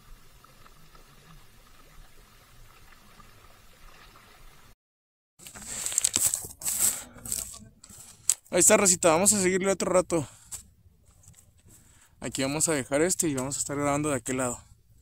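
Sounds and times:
small waves lapping against rocks: 0.0 - 4.7
handling noise on microphone: 5.4 - 8.6.

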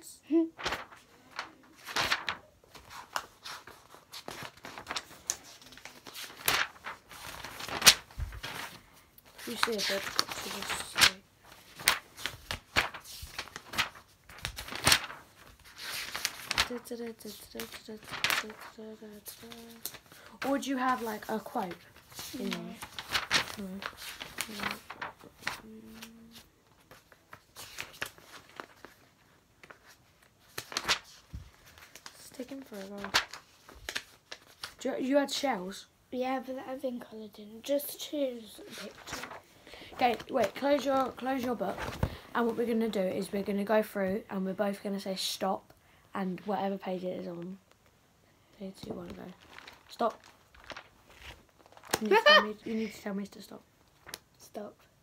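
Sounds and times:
paper pages rustling: 0.5 - 35.8, 37.6 - 45.4, 48.6 - 54.8
person humming: 25.6 - 26.4.

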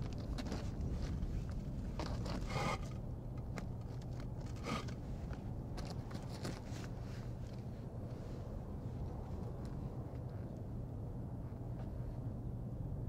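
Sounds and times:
steady low rumble: 0.0 - 13.0
scraping rustles: 3.6 - 8.5.

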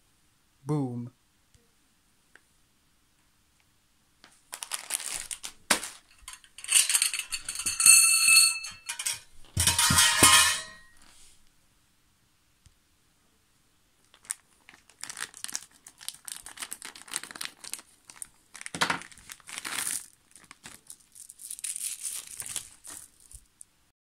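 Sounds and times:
plastic bag crinkling: 4.5 - 7.7, 14.1 - 23.7.

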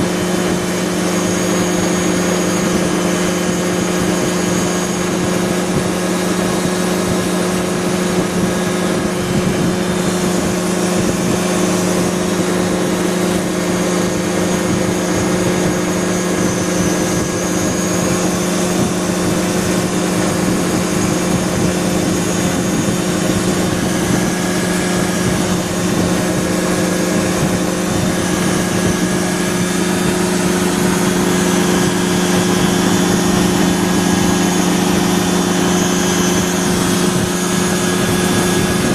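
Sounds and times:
aircraft engine and propeller drone: 0.0 - 38.9.

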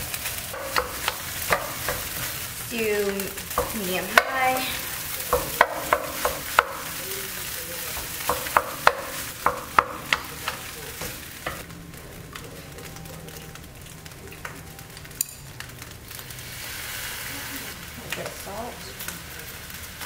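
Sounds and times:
wooden spatula scraping a wok: 0.0 - 11.7
rice sizzling in a wok: 0.0 - 20.0.

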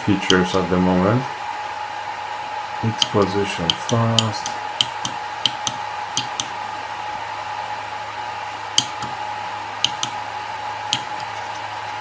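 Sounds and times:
cooling fans whirring: 0.0 - 12.0.

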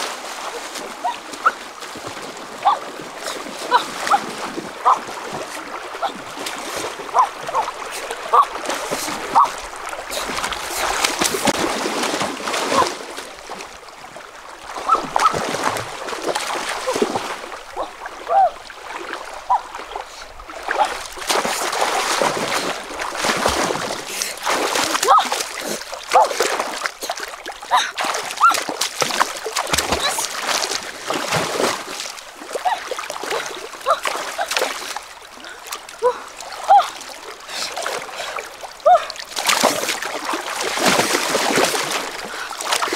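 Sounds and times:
river current rushing: 0.0 - 42.9
water splashing: 0.0 - 42.9.

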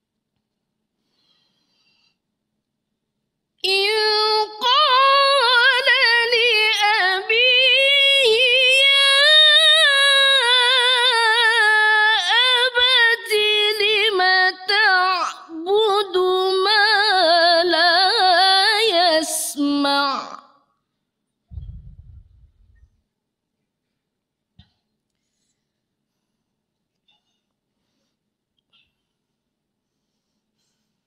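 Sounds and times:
woman chanting melodically: 3.6 - 20.4.

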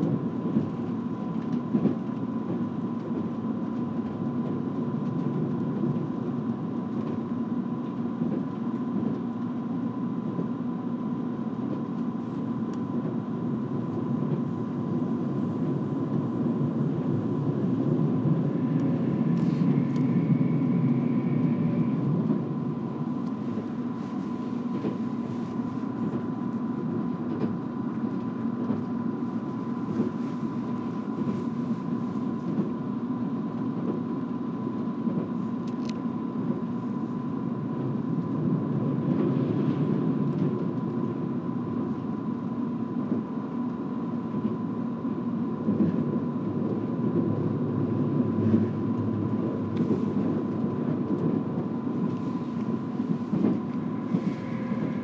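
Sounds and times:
train wheels rumbling: 13.0 - 32.8, 45.6 - 55.0
rising whine: 15.4 - 23.4, 53.7 - 55.0.

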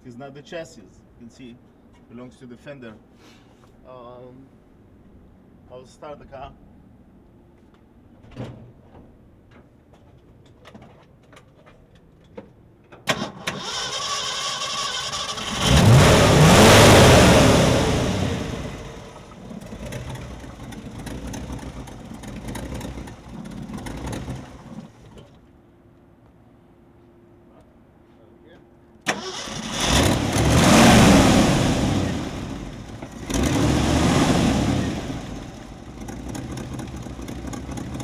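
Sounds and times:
engine starting and revving: 13.1 - 25.2, 29.1 - 38.0.

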